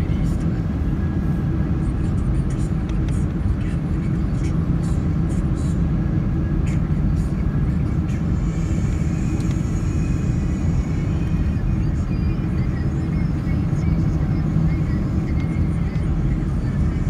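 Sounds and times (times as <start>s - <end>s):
jet engine rumble in cabin: 0.0s - 17.0s
faint high whine: 5.6s - 17.0s.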